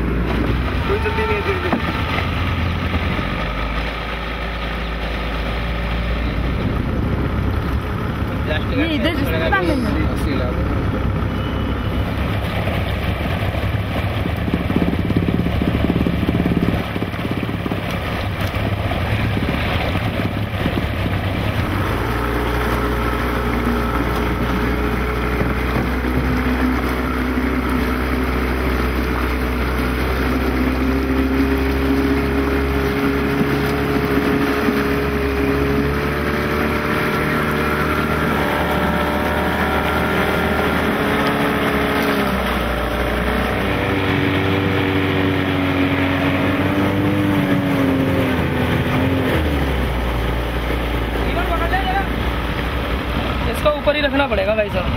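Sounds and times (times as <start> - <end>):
wind noise: 0.0 - 3.8, 6.0 - 8.7, 10.7 - 51.2
motorboat engine running: 0.0 - 54.9
water noise: 0.0 - 54.9.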